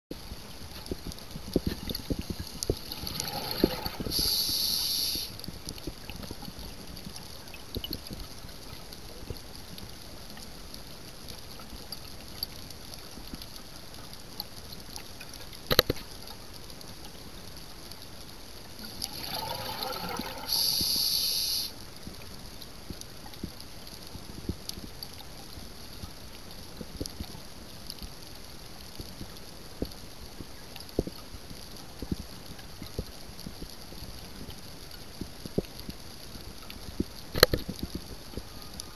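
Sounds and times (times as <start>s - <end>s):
bubbling and gurgling: 0.9s - 5.0s, 18.8s - 21.0s
underwater hiss: 2.3s - 5.4s, 18.8s - 21.8s
scuba diver breathing through regulator: 2.8s - 5.3s, 18.9s - 21.7s.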